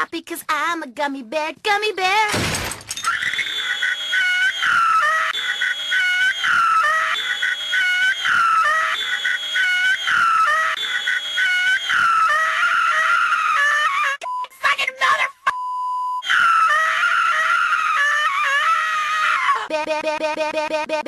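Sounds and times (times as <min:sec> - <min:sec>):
high cartoonish voice screaming: 0:05.9 - 0:10.8, 0:11.4 - 0:14.2, 0:16.2 - 0:19.7.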